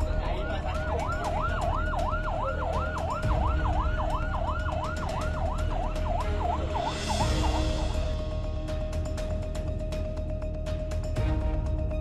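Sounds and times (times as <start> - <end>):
ambulance siren yelping: 0.0 - 8.2.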